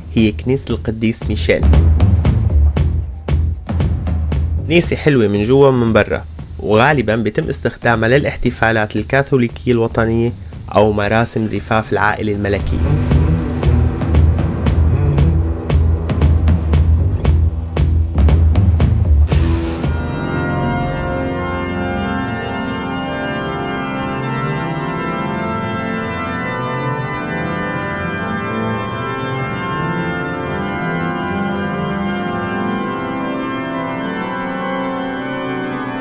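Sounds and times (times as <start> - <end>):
organ playing held chords: 1.2 - 9.0, 10.3 - 36.0.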